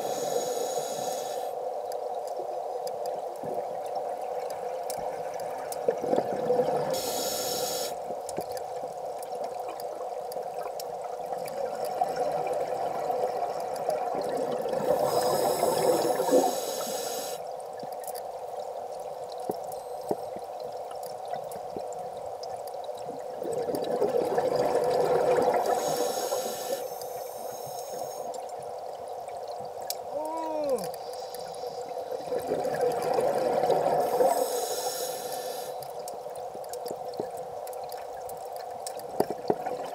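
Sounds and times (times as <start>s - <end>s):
diver breathing through regulator: 0.0s - 1.6s, 7.0s - 8.0s, 14.8s - 17.4s, 25.7s - 28.3s, 34.0s - 35.8s
bubbles rushing underwater: 23.4s - 25.8s, 32.2s - 34.0s.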